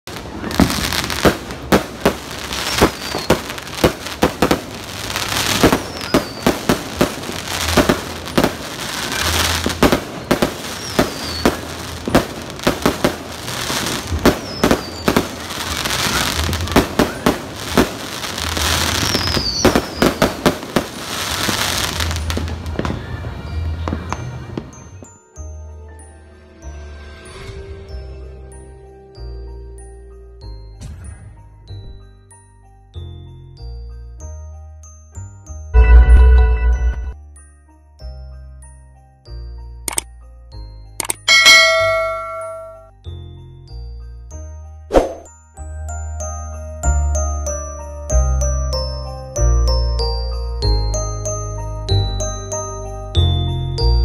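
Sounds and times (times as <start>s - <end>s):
fireworks crackling: 0.0s - 25.1s
fireworks bangs: 0.1s - 24.8s
fireworks whistles: 0.2s - 25.2s.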